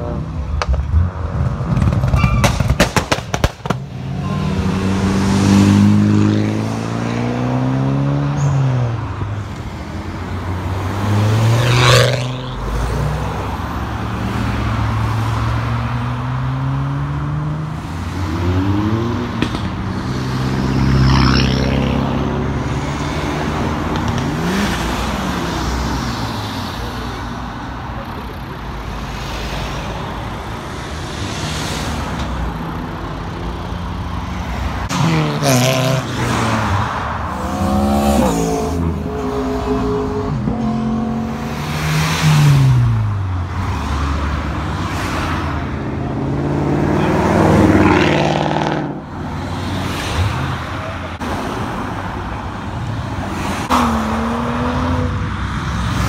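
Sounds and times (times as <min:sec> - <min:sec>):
cars driving past revving: 0:00.0 - 0:56.0
sharp cracks: 0:01.7 - 0:03.9.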